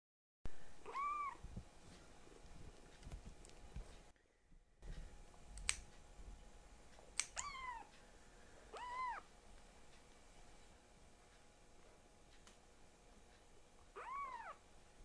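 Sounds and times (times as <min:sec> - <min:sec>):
kitten meowing: 0:00.8 - 0:01.4, 0:07.3 - 0:07.9, 0:08.7 - 0:09.3, 0:14.0 - 0:14.6
nail clippers snipping: 0:05.6 - 0:05.8, 0:07.2 - 0:07.4.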